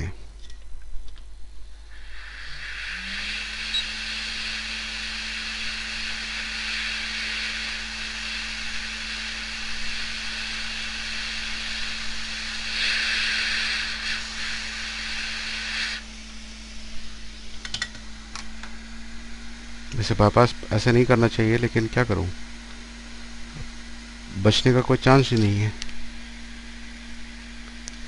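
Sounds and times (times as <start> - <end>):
rework station fan hum: 0.0 - 28.0
hiss of hot air: 1.9 - 17.4.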